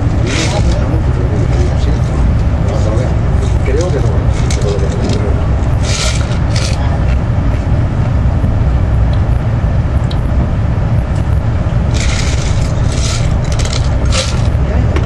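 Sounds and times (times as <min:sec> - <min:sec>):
rushing air: 0:00.0 - 0:15.0
train wheels rumbling on rail: 0:00.0 - 0:15.0.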